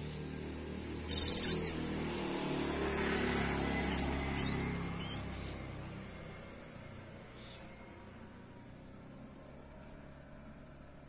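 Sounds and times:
bird trilling and calling: 0:01.0 - 0:01.9, 0:03.8 - 0:05.5.

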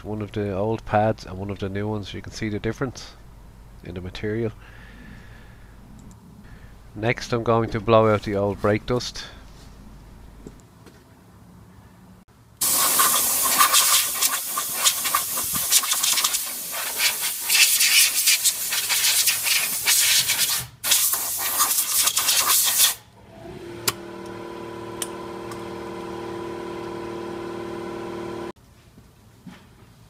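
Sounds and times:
compressed air blow gun hissing: 0:12.6 - 0:23.0
steady multi-pitched hum: 0:24.0 - 0:28.6.

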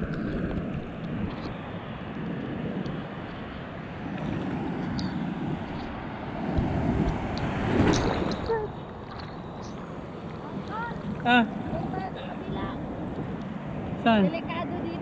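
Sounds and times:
foaming surf rushing: 0:00.0 - 0:15.0
water splashing ticks: 0:06.6 - 0:11.4.

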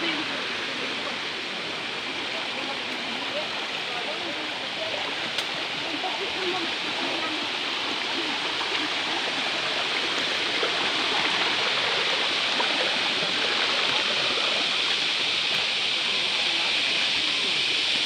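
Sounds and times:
river water rushing over rocks: 0:00.0 - 0:18.0.

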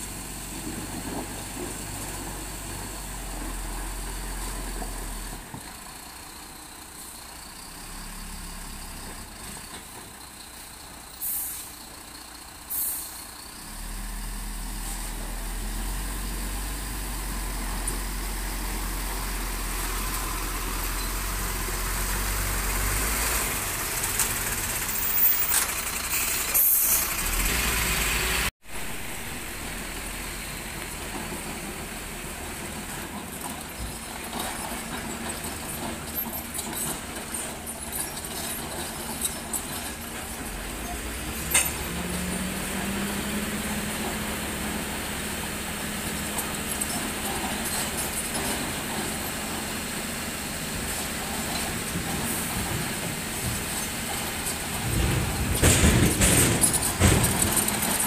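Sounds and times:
diesel truck engine running: 0:00.0 - 0:58.0
air brake hisses: 0:11.2 - 0:11.8, 0:12.7 - 0:13.3, 0:26.0 - 0:27.2.

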